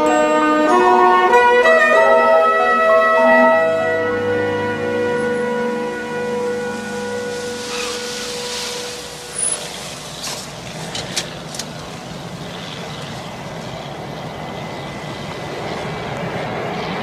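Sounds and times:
vehicle engine running: 3.8s - 17.0s
sharp clicks and knocks: 10.2s - 11.9s.

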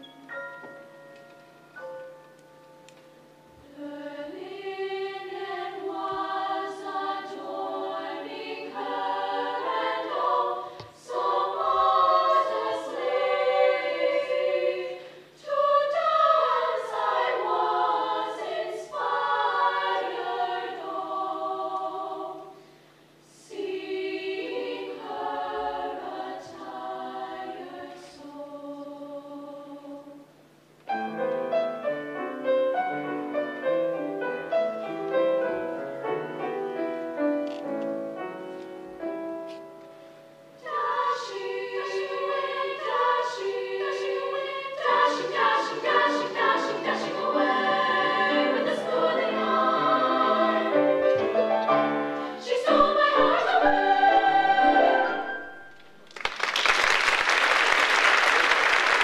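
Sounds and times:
piano: 0.0s - 22.6s, 30.8s - 59.0s
women's choir singing: 3.5s - 30.3s, 40.6s - 55.7s.

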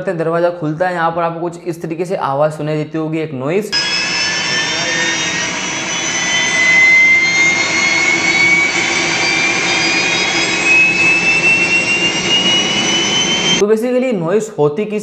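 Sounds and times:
gas turbine rushing and whining: 3.8s - 13.6s.

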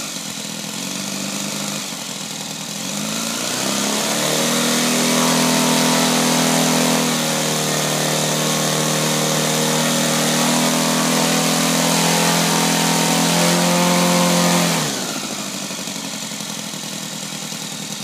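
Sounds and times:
model aircraft engine running: 0.0s - 18.0s.

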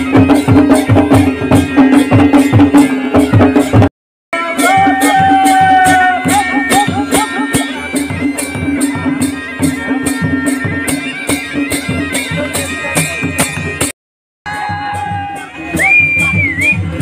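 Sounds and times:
drums and cymbals fast beat: 0.0s - 13.9s, 14.5s - 17.0s
bagpipe wavering melody: 4.4s - 13.8s.

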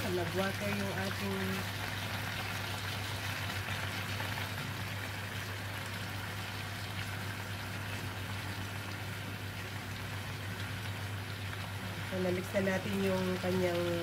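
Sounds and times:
vegetables sizzling in pan: 0.0s - 6.4s.

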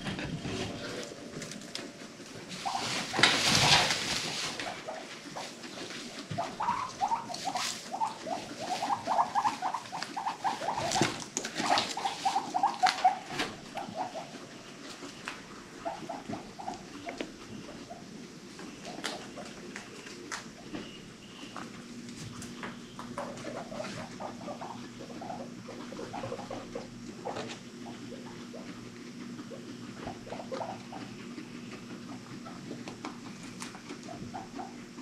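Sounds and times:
guinea pigs calling: 0.0s - 35.0s
hay rustling: 2.1s - 15.8s.

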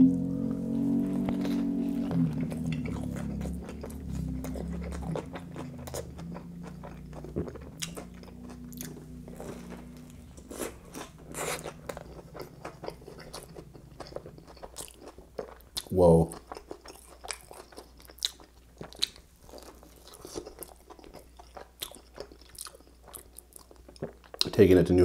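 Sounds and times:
chewing crunchy food: 1.0s - 24.6s.

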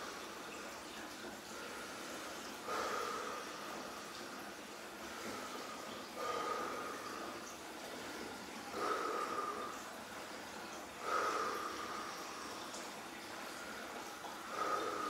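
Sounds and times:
man breathing heavily: 1.6s - 4.2s, 5.0s - 12.8s, 13.5s - 15.0s.

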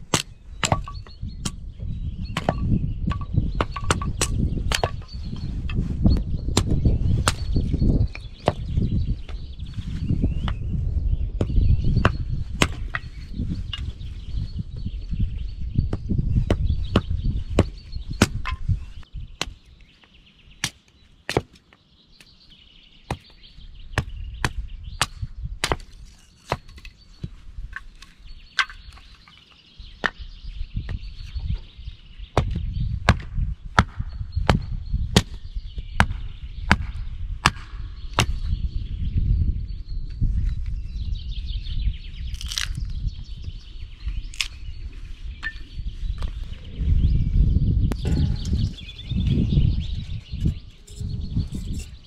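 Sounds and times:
birds singing: 0.0s - 52.0s
hatchet chopping wood: 0.1s - 1.7s, 2.3s - 5.1s, 6.4s - 8.8s, 11.4s - 13.9s, 15.9s - 18.6s, 20.6s - 21.6s, 23.1s - 29.0s, 32.4s - 38.5s.

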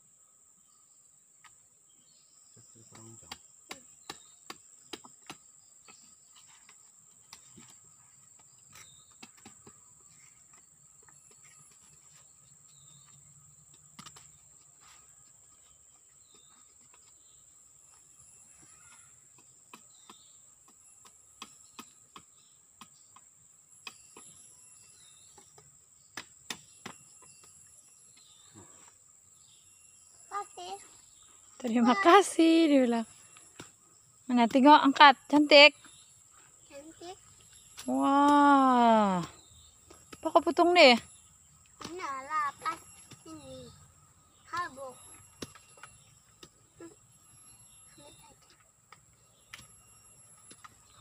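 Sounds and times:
high-pitched insect drone: 41.9s - 48.6s.

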